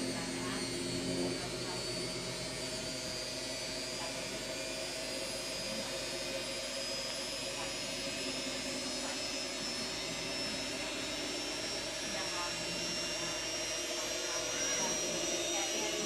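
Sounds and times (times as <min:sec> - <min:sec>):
high motor whine: 0:00.0 - 0:16.0
washing machine humming: 0:00.0 - 0:16.0.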